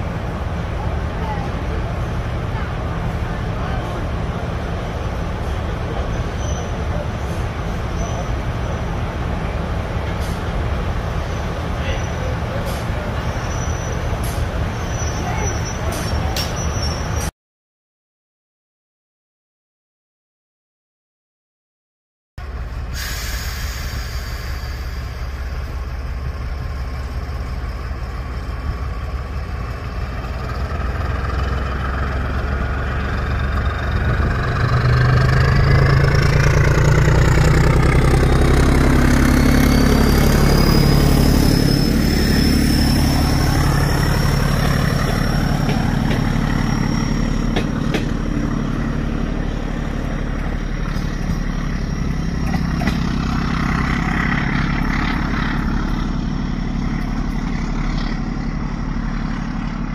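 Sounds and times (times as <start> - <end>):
diesel train engines: 0.0 - 17.3, 22.4 - 59.9
high whine rising in pitch: 35.6 - 47.5.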